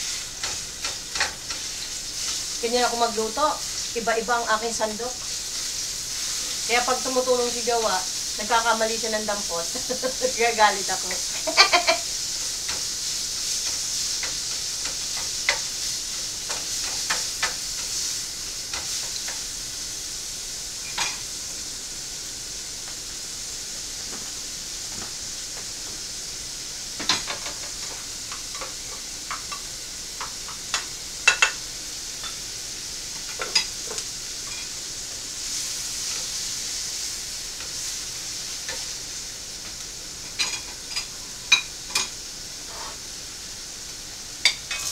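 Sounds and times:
food sizzling in a frying pan: 0.0s - 44.9s
spatula scraping a pan: 42.6s - 43.0s.

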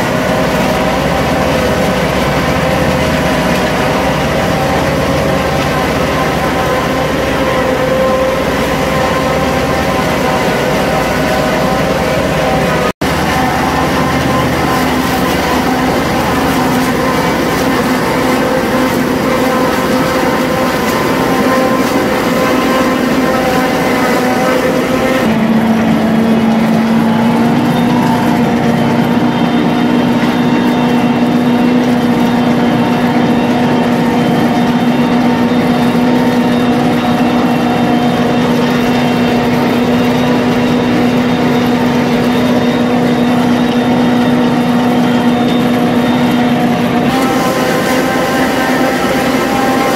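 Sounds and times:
farm machinery engine humming: 0.0s - 49.9s.

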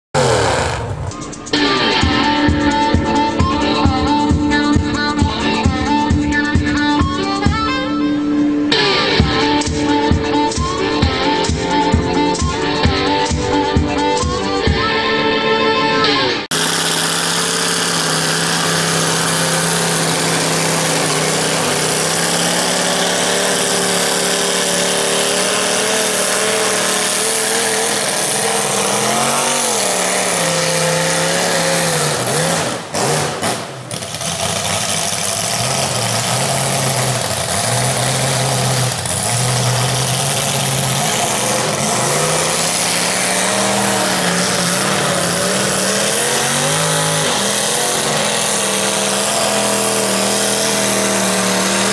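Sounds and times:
tires spinning in mud: 0.0s - 2.1s, 16.5s - 51.9s
truck engine revving: 0.0s - 51.9s.

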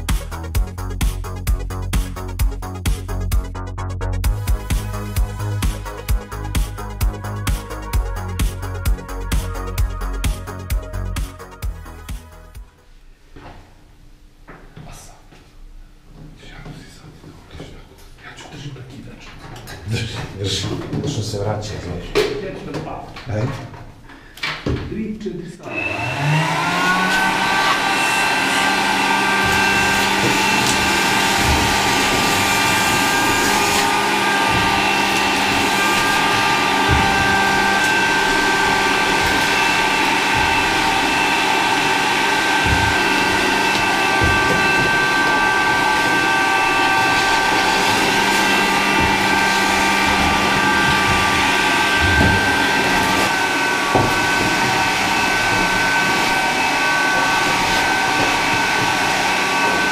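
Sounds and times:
vacuum cleaner whining: 4.3s - 12.8s, 25.6s - 59.9s
dull knocks: 29.0s - 56.0s.

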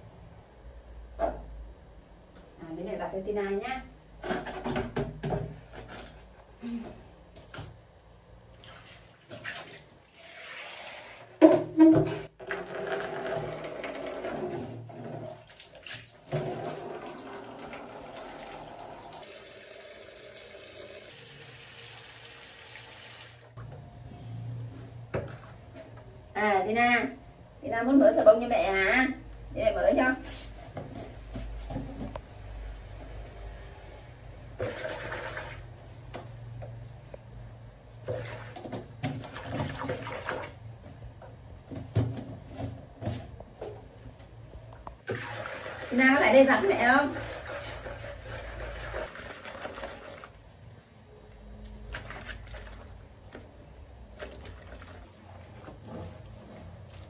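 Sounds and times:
hands sloshing clothes in water: 8.5s - 10.4s, 51.6s - 57.0s
water sloshing in plastic basin: 8.5s - 10.7s, 11.8s - 18.6s, 34.6s - 35.8s, 38.0s - 57.0s
tap water running into basin: 12.3s - 23.7s, 34.6s - 35.7s, 44.9s - 50.5s.

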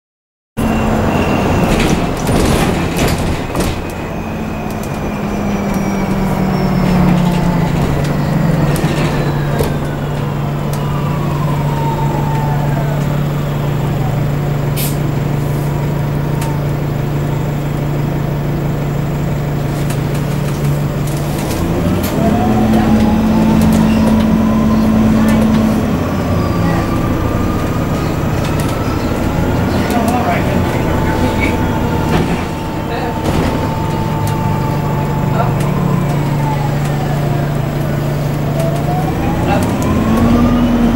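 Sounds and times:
low engine hum: 0.6s - 40.9s
bus body knocks and rattles: 1.3s - 4.3s, 29.5s - 34.5s.

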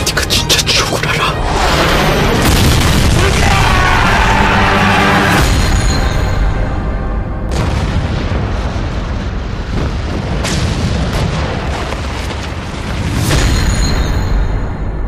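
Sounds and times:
explosion blasts: 1.4s - 14.8s
low battle rumble: 6.4s - 13.2s.

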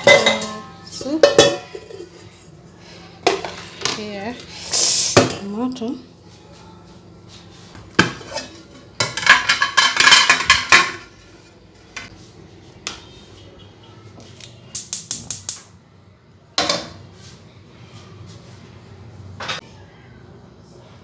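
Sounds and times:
dishes and pots clattering: 0.0s - 2.4s, 3.2s - 4.1s, 7.8s - 11.2s, 16.6s - 17.0s.

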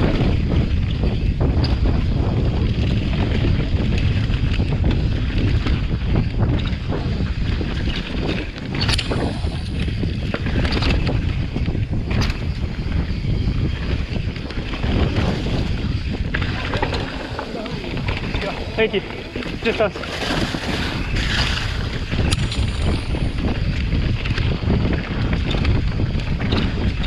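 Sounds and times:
bike rattling over bumps: 0.0s - 27.0s
sharp bike clatters: 0.0s - 27.0s
wind rushing over microphone: 0.0s - 27.0s.

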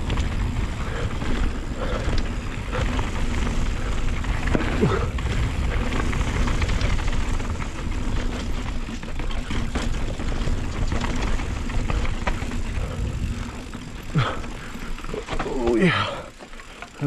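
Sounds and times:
wind buffeting microphone: 0.0s - 15.3s
mountain bike rattling over rocks: 0.0s - 17.0s
rider grunting: 0.6s - 6.4s, 11.6s - 17.0s.

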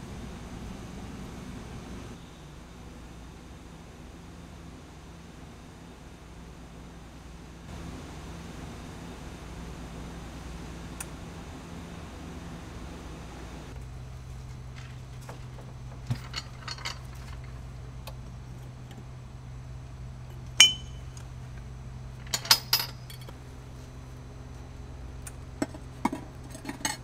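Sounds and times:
steady low hum: 0.0s - 27.0s
metal tools clinking on steel: 14.6s - 17.7s, 20.5s - 21.2s, 22.2s - 23.3s.

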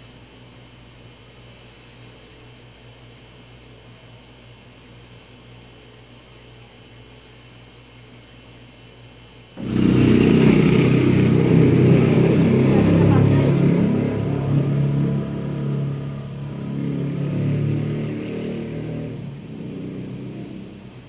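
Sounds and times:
voices: 9.6s - 17.7s
motorcycle engine running: 9.6s - 21.0s.

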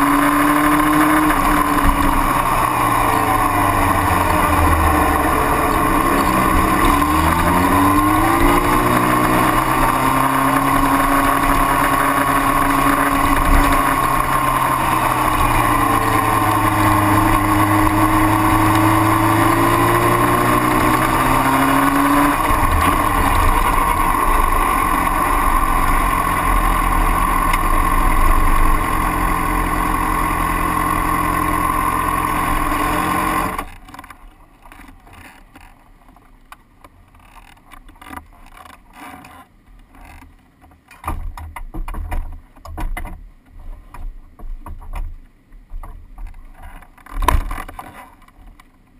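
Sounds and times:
motorcycle engine: 0.0s - 34.2s.

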